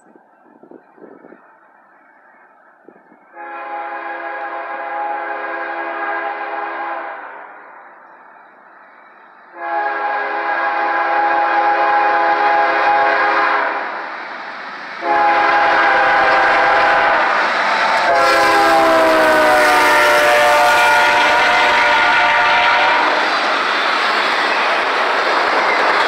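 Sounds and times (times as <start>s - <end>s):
train engine and wheels rumbling: 0.0s - 26.0s
locomotive horn blasts: 3.3s - 7.3s, 9.5s - 13.8s, 15.0s - 17.3s, 18.0s - 23.3s.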